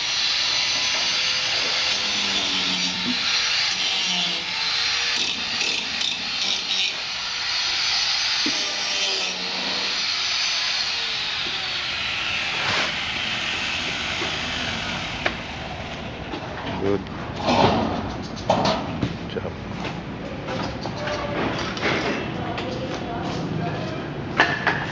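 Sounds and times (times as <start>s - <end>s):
angle grinder grinding steel: 0.0s - 16.3s.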